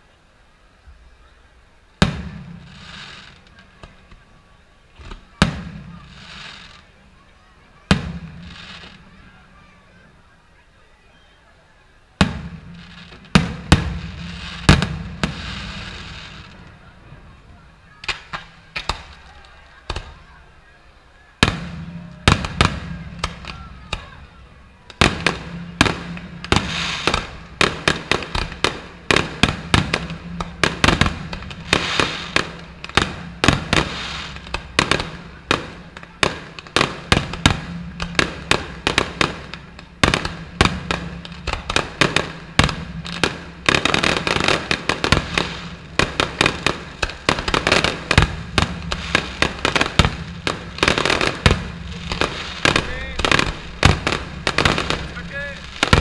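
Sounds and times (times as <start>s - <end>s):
continuous crackling: 2.0s - 9.8s, 12.2s - 56.0s
firework shells bursting: 24.9s - 56.0s.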